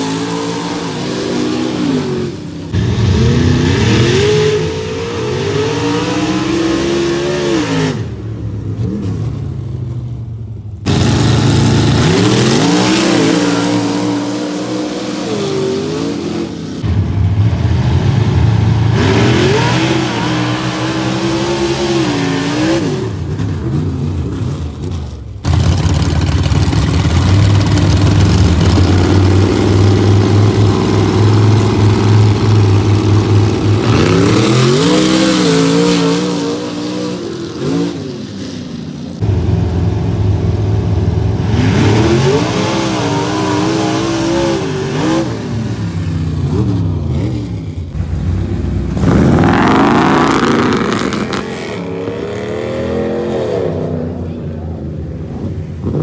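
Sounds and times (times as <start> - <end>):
truck engines revving and accelerating: 0.0 - 56.0
truck engines idling rumble: 23.2 - 33.9, 45.6 - 49.5.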